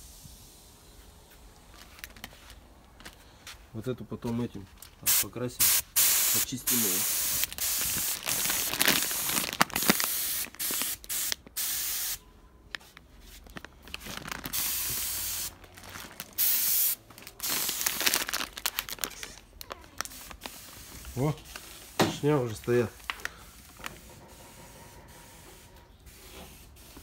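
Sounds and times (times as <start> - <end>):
aerosol spray can hissing: 5.1 - 9.2, 9.8 - 12.2.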